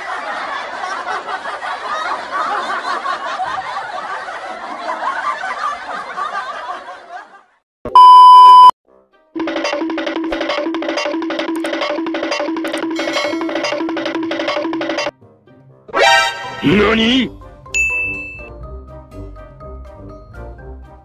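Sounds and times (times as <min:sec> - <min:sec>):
crowd laughing: 0:00.0 - 0:07.6
loud steady test tone beep: 0:07.9 - 0:08.8
music: 0:08.8 - 0:21.0.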